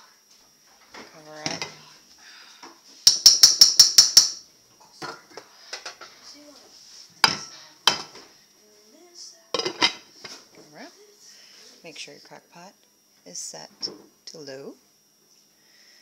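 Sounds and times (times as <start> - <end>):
spoon tapping ceramic rim: 3.1 - 4.4.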